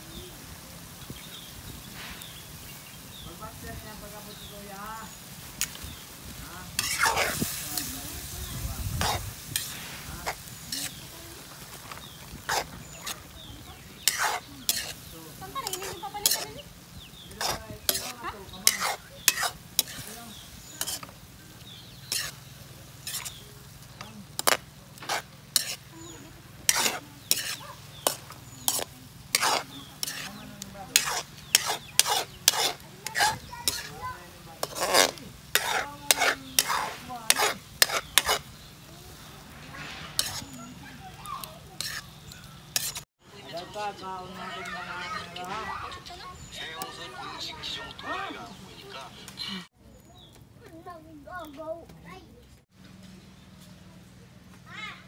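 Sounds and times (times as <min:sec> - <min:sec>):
food sizzling: 0:00.0 - 0:49.8
spatula scraping metal wok: 0:01.9 - 0:43.1.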